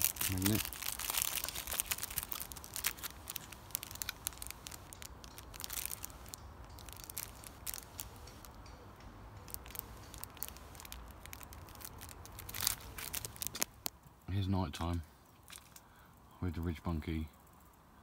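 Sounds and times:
nylon fabric rustling: 0.0s - 8.2s
small handling clicks and crinkles: 0.0s - 14.1s, 14.8s - 15.9s.

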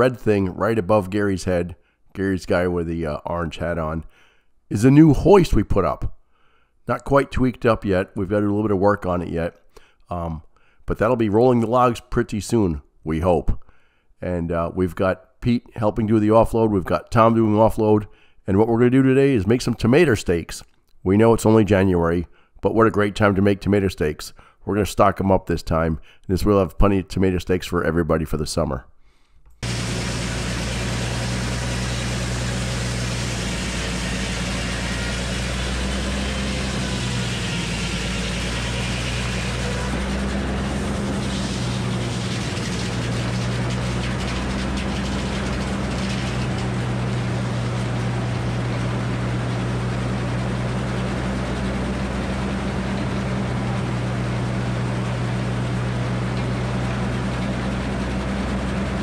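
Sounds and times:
circular sawmill blade sawing log: 29.6s - 59.0s.

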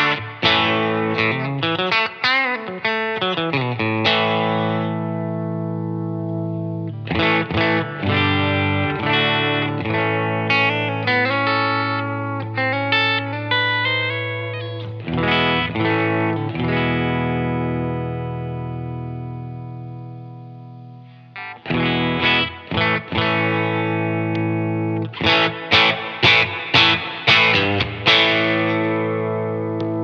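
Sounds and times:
electric guitar chords ringing: 0.0s - 30.0s
electric guitar single-note licks: 0.0s - 30.0s.

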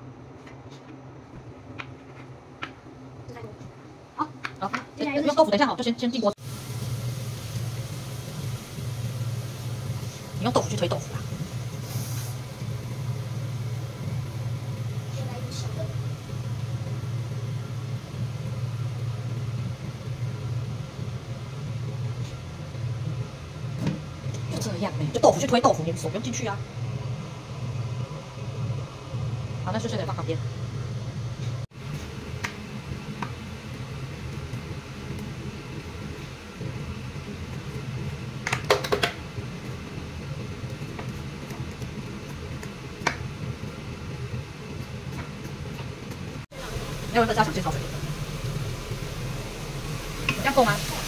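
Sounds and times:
low mechanical hum: 0.0s - 51.0s
tofu sizzling in a wok: 6.4s - 21.3s, 46.6s - 51.0s
low hum: 46.4s - 51.0s.

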